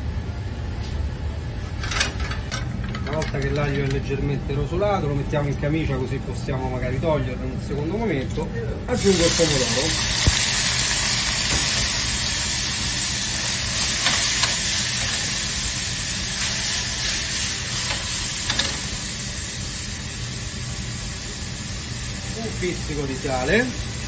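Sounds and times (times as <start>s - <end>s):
tomatoes sizzling in oil: 8.9s - 24.0s.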